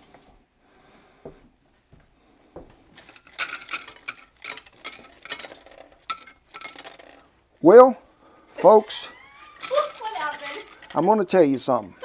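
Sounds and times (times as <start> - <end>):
dried beans clattering in dish: 3.0 - 7.3, 8.6 - 12.0.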